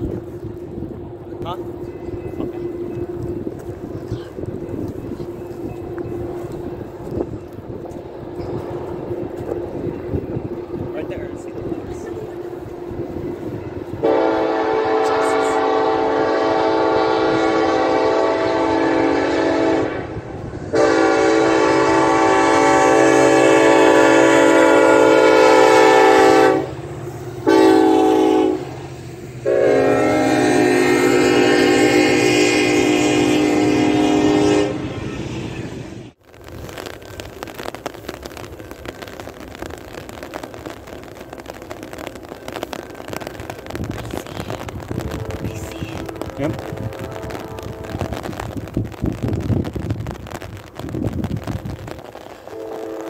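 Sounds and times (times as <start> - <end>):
low diesel locomotive rumble: 0.0 - 36.2, 38.3 - 50.9
locomotive air horn blasts: 14.0 - 26.8, 27.4 - 35.0, 45.0 - 48.4, 52.5 - 53.0.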